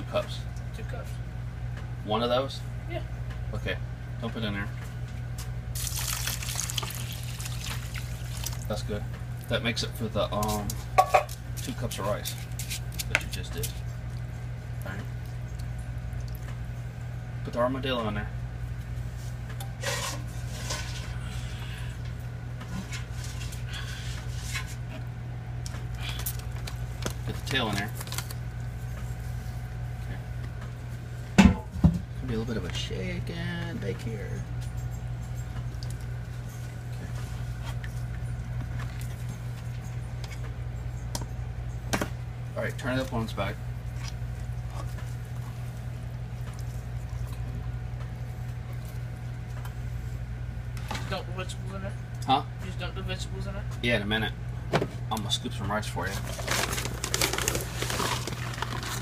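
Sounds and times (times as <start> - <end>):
steady low hum: 0.0 - 59.0
soft wet handling sounds: 4.7 - 9.6, 43.8 - 50.9.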